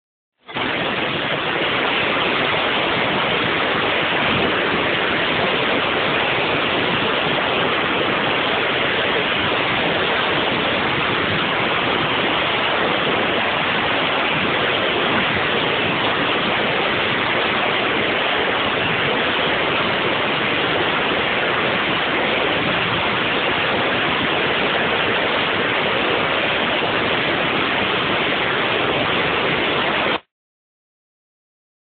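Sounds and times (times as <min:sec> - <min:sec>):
steady rushing hiss: 0:00.5 - 0:30.2.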